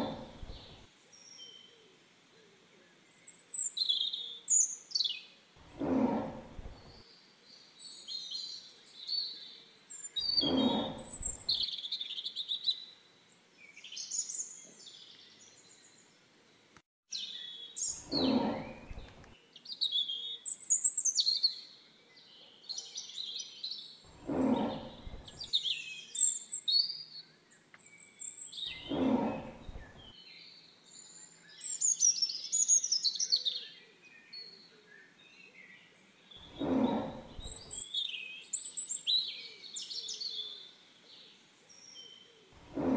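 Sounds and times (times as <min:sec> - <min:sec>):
tiger deep calls: 0:00.0 - 0:00.8, 0:05.6 - 0:07.0, 0:10.2 - 0:11.6, 0:18.0 - 0:19.3, 0:24.1 - 0:25.5, 0:28.7 - 0:30.1, 0:36.4 - 0:37.8, 0:42.6 - 0:42.9
songbirds chirping and singing: 0:00.0 - 0:01.9, 0:02.6 - 0:13.0, 0:13.6 - 0:42.9.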